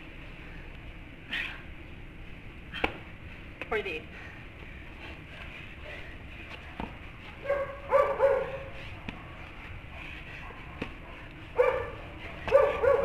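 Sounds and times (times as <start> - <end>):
dog barking: 7.4 - 8.8, 10.4 - 13.0.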